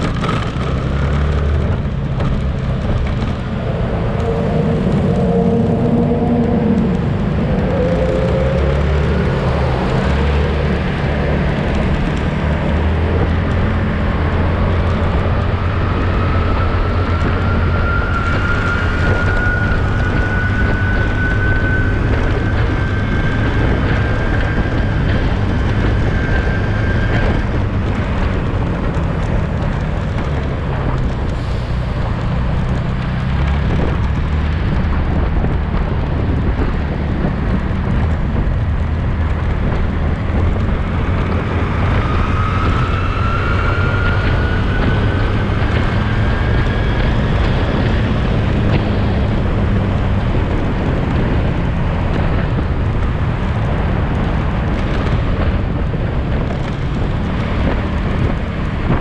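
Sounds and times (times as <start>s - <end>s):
high-pitched whine: 0.0s - 32.4s, 40.3s - 51.2s
motorcycle engine hum: 0.0s - 59.0s
wind and road noise: 0.0s - 59.0s.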